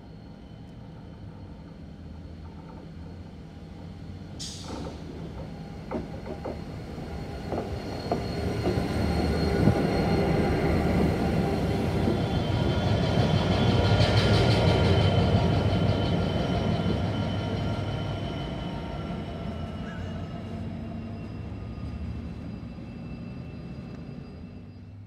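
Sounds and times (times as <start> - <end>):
diesel locomotive rumbling past: 0.0 - 25.0
wheel squeal: 5.6 - 25.0.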